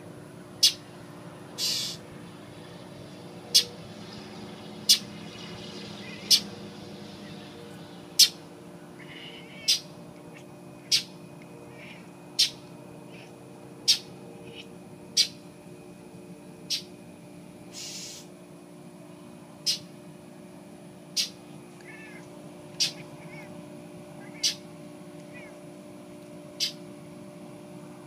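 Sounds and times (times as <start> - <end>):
bird harsh alarm calls: 0.6 - 0.8, 1.6 - 2.1, 3.5 - 3.8, 4.7 - 6.6, 8.2 - 8.4, 9.0 - 13.3, 13.9 - 15.4, 16.7 - 17.0, 17.7 - 18.3, 19.6 - 19.9, 21.2 - 21.4, 22.8 - 23.5, 24.2 - 24.7, 26.6 - 26.8.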